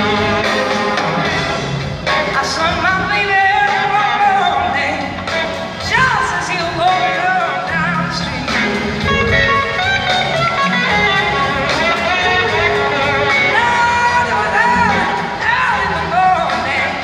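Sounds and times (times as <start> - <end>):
blues band playing: 0.0 - 17.0
electric guitar lead: 0.0 - 17.0.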